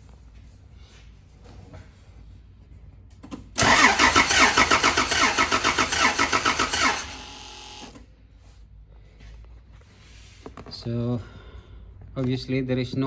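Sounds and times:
car engine cranking without firing: 3.6 - 8.0.

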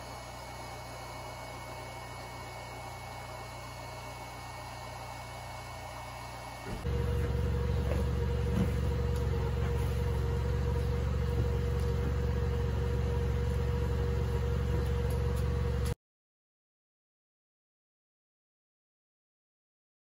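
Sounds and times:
electric air pump whining: 0.0 - 16.0.

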